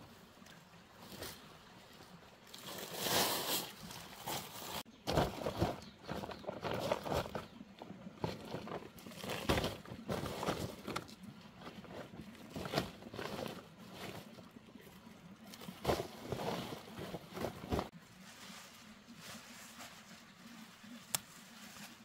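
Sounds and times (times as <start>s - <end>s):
plastic bags rustling: 2.6s - 14.6s, 15.5s - 20.8s.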